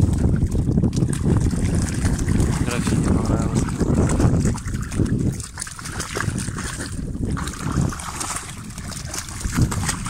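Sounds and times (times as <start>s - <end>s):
dogs splashing in water: 0.0s - 10.0s
wind rumbling on microphone: 0.0s - 10.0s.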